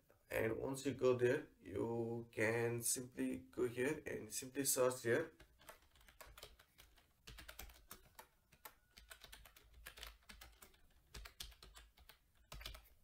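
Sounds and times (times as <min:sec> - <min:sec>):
faint keyboard typing: 0:05.2 - 0:13.0.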